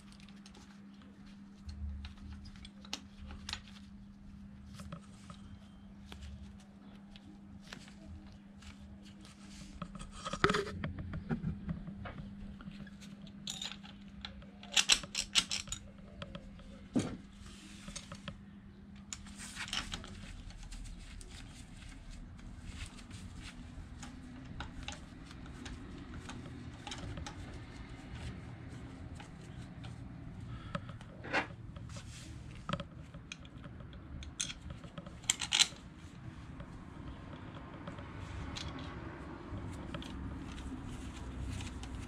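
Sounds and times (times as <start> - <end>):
steady low hum: 0.0 - 42.0
metal tools clinking and scraping: 13.4 - 14.1.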